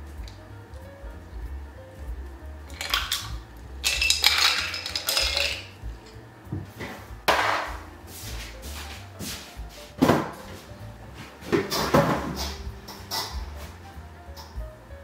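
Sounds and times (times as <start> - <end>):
iced coffee pouring: 2.7 - 5.7
ice clinking against metal: 2.7 - 5.8.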